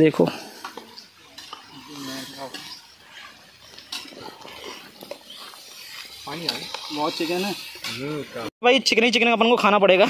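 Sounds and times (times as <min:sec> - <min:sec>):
metal spoon scraping a pot: 0:00.5 - 0:08.5.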